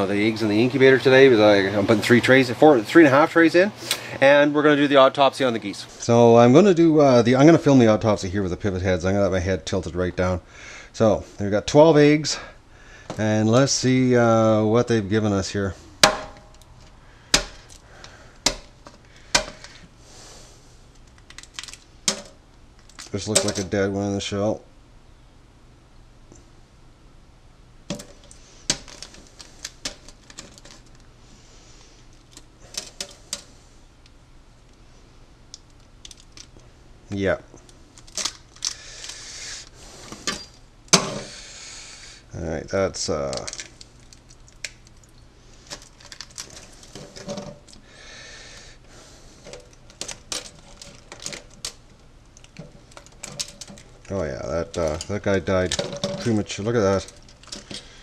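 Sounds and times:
soft hiss: 0.0 - 58.0
eggshell cracking and crunching: 21.0 - 23.2, 35.6 - 36.6, 37.6 - 39.4, 43.2 - 47.8
eggshell cracking: 35.5 - 36.7, 37.6 - 39.6, 43.1 - 48.7, 49.5 - 58.0.

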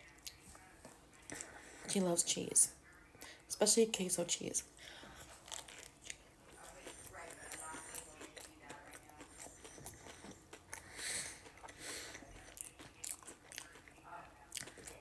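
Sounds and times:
person chewing food: 4.8 - 15.0.

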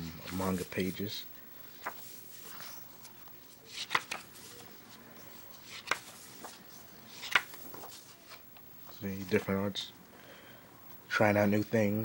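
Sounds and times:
paper pages turning: 0.2 - 9.6.

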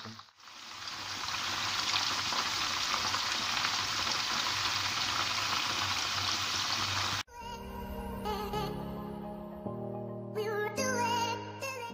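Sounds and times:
chicken sizzling in hot oil: 0.0 - 7.2.

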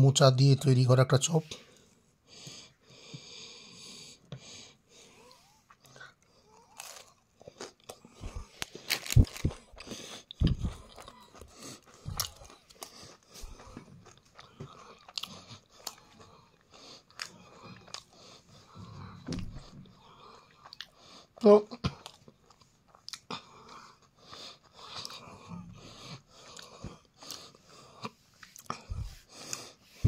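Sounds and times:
biting and chewing crisp food: 5.2 - 30.0
crisp crust crunching: 6.8 - 14.3.

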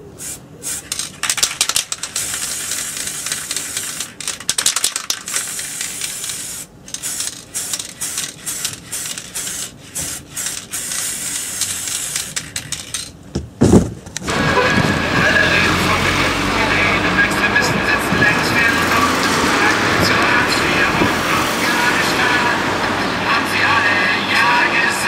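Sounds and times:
spray paint can hissing: 0.1 - 13.1
spray can rattling when shaken: 0.2 - 13.2.

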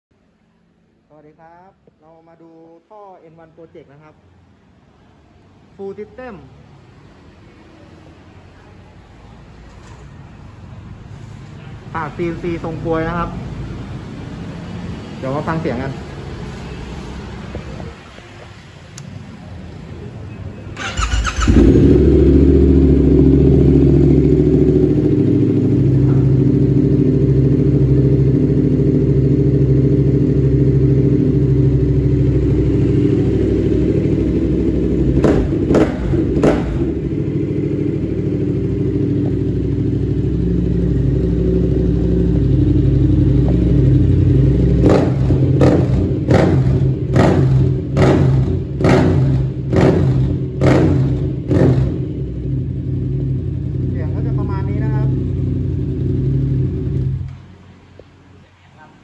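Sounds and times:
motorcycle engine idling and revving: 5.8 - 58.4.

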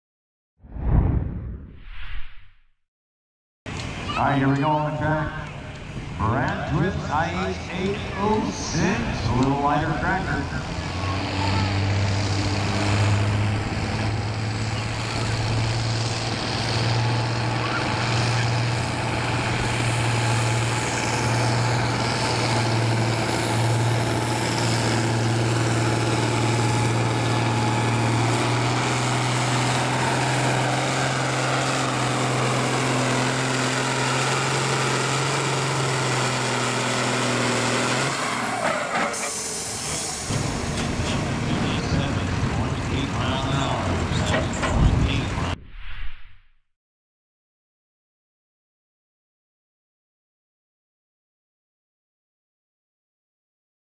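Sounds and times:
tractor diesel engine under load: 5.1 - 45.6.

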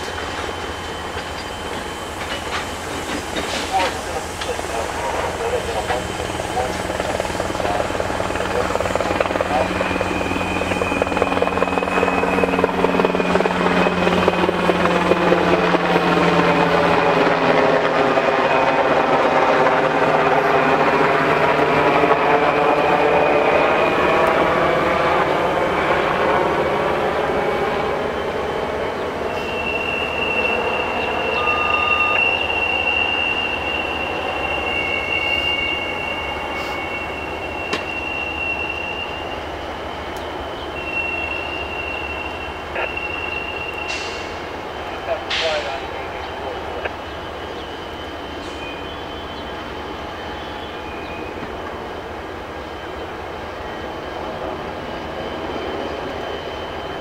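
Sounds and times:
freight train moving: 0.0 - 57.0
train wheel squeal: 0.0 - 57.0
aircraft passing overhead: 3.6 - 37.6.

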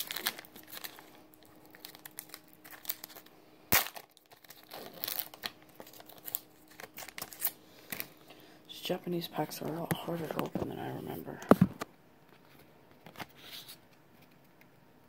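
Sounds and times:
foil wrapper crinkling and tearing: 0.0 - 8.3.

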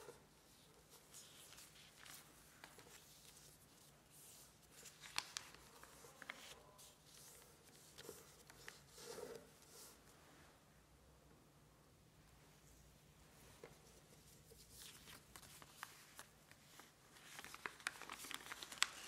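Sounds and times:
paper rustling and crackling: 0.0 - 10.0, 13.6 - 19.0.

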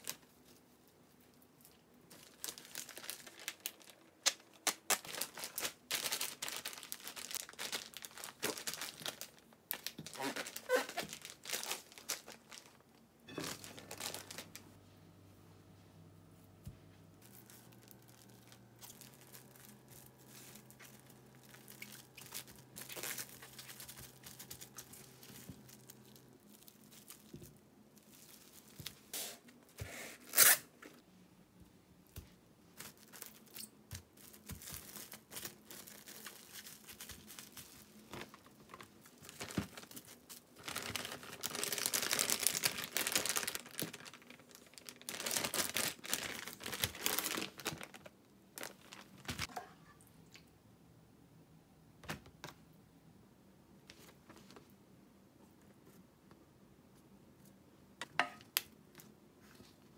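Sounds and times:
plastic cling film crinkling: 1.6 - 14.8, 17.1 - 29.4, 32.7 - 49.5
sharp plastic crackle: 1.7 - 14.7, 17.2 - 29.3, 32.8 - 49.5
plastic bag rustling: 2.1 - 14.8, 17.0 - 29.2, 32.7 - 49.5.

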